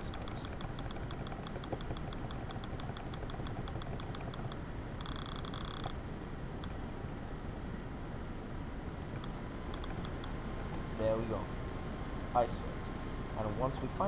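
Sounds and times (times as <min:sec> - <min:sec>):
rapid computer clicking: 0:00.0 - 0:06.0, 0:09.1 - 0:10.8.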